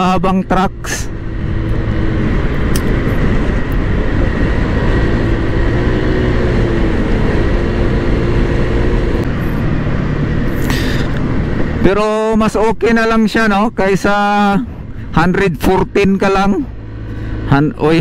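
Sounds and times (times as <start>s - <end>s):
scooter engine droning: 0.0s - 12.4s
wind rush on microphone: 1.1s - 12.6s.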